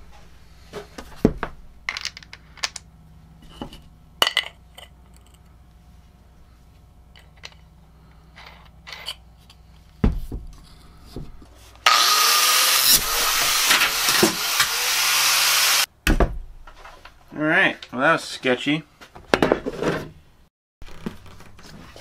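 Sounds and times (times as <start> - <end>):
angle grinder cutting steel: 11.8 - 15.9.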